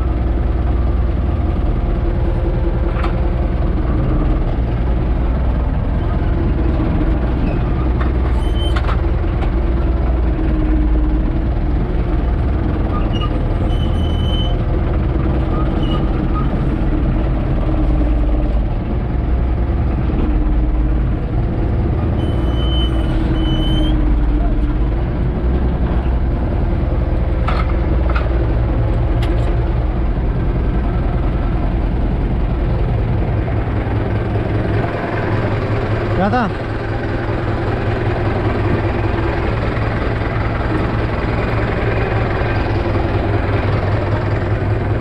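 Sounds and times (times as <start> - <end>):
tractor diesel engine running: 0.0 - 45.0
brief high squeaks: 8.3 - 9.0, 13.0 - 14.6, 22.2 - 24.0.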